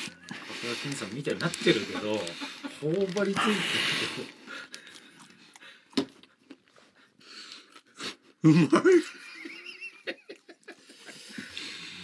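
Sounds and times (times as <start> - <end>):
person chewing crunchy food: 0.0 - 8.0.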